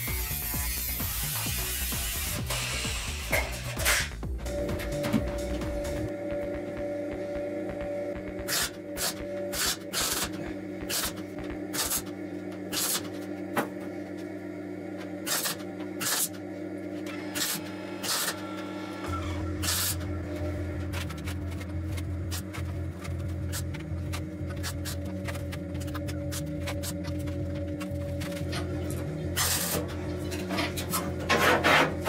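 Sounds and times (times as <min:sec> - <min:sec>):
background music: 0:00.0 - 0:11.1
welder crackling bursts: 0:08.2 - 0:12.1, 0:12.7 - 0:13.1, 0:15.2 - 0:16.3.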